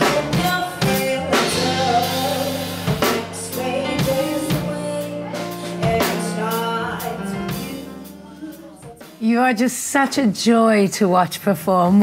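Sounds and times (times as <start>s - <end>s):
live band with drums and keyboard: 0.0s - 9.4s
woman singing soul song: 0.0s - 9.8s.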